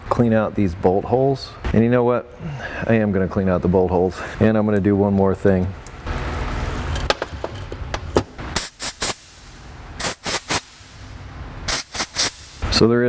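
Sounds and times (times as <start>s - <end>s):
hissing spray blasts: 8.5s - 12.8s.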